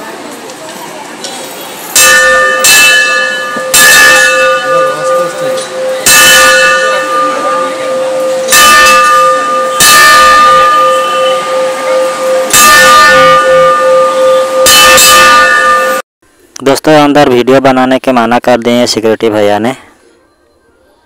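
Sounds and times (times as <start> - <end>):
brass temple bell ringing: 2.0 - 16.0.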